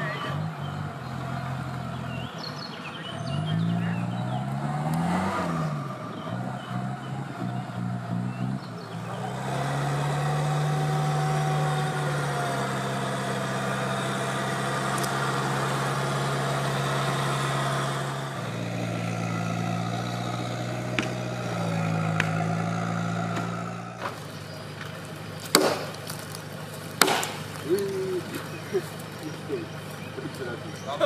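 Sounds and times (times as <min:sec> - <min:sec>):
off-road engine running: 0:00.0 - 0:31.0
sharp knocks: 0:25.5 - 0:26.0, 0:27.0 - 0:27.5.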